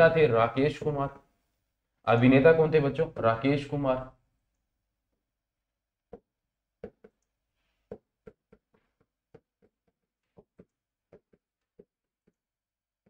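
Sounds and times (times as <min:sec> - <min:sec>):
pen tapping on board: 0:06.1 - 0:07.2, 0:07.9 - 0:12.4.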